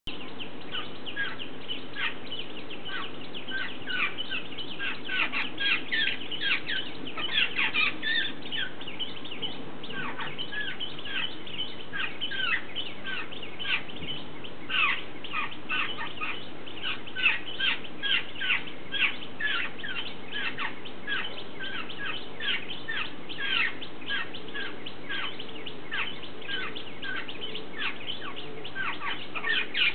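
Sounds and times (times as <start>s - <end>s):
birds chattering: 0.1s - 29.9s
fledgling begging calls: 0.1s - 29.9s.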